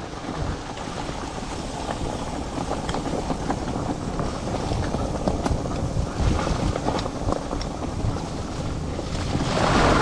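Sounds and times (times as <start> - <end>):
cart tyres rumbling on dirt: 0.0 - 10.0.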